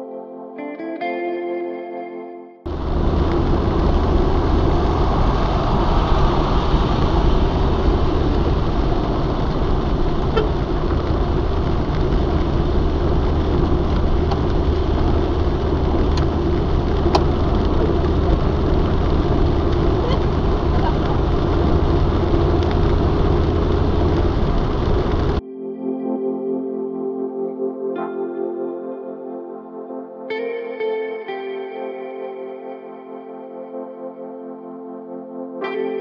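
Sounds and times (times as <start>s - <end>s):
car engine and tyres on wet road: 2.7s - 25.4s.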